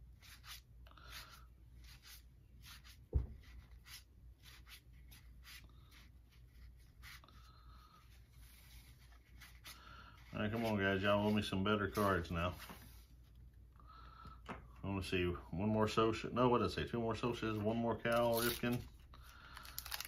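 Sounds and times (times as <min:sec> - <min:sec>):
dull thump: 0:03.1 - 0:03.4.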